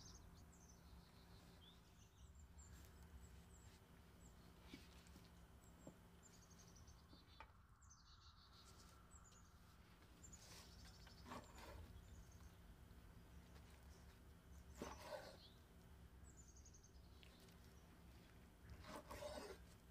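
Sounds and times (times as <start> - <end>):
faint high bird chirps: 5.7 - 12.6.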